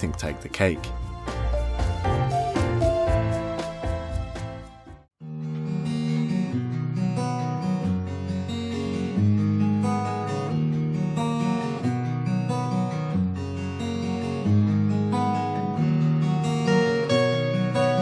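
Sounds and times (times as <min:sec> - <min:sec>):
strummed acoustic guitar: 0:05.2 - 0:18.0.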